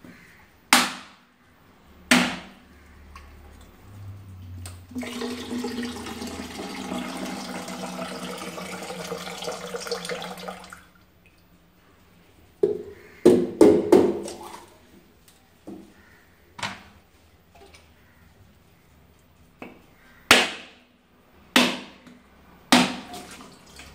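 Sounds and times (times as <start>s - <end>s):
machete knocking coconut shell: 0.8s - 1.2s, 21.6s - 22.0s
liquid pouring into container: 4.9s - 11.0s.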